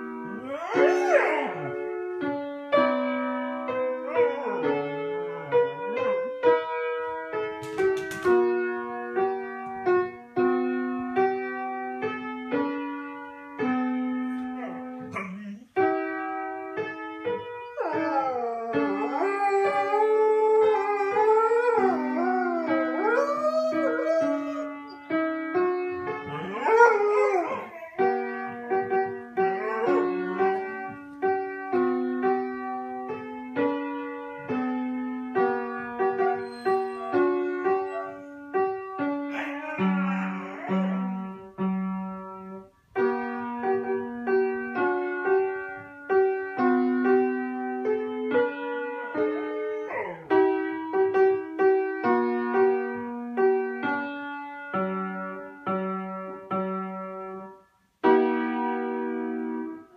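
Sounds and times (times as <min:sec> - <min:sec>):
piano playing slow melody: 0:00.0 - 0:59.9
dog howling: 0:00.2 - 0:01.8, 0:04.0 - 0:06.1, 0:14.6 - 0:15.7, 0:17.8 - 0:24.9, 0:26.2 - 0:30.9, 0:36.4 - 0:38.4, 0:39.3 - 0:41.2, 0:49.4 - 0:50.3.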